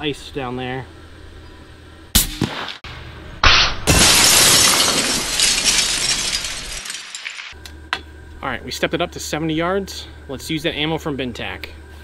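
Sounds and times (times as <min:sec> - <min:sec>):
air rifle shot: 0:02.2 - 0:02.8
frozen balloon crashing apart: 0:03.5 - 0:07.5
ice shattering and spraying: 0:03.9 - 0:07.6.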